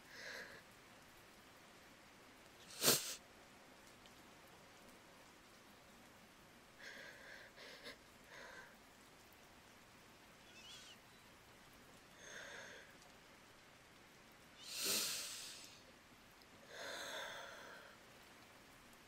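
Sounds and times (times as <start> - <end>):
woman breathing softly: 12.2 - 13.0, 16.7 - 18.0.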